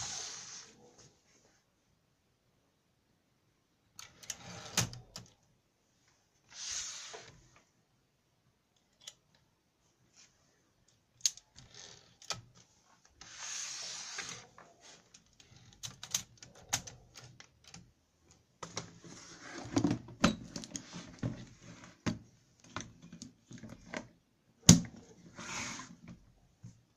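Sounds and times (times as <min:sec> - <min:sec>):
typewriter carriage sliding: 0:04.0 - 0:05.3, 0:13.2 - 0:14.5
typewriter clicks and rattles: 0:15.5 - 0:17.8.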